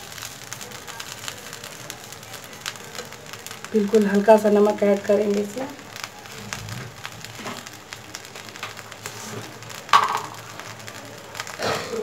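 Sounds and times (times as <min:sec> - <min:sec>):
rice sizzling in a pan: 0:00.0 - 0:12.0
small clicks and scrapes: 0:06.0 - 0:11.6.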